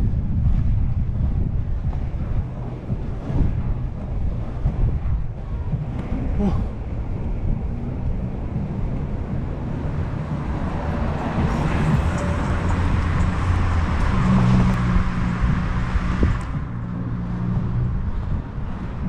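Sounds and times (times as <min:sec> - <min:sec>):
inline skate wheels rolling on asphalt: 0:00.0 - 0:19.0
wind on microphone: 0:00.0 - 0:19.0
car passing by: 0:07.5 - 0:19.0.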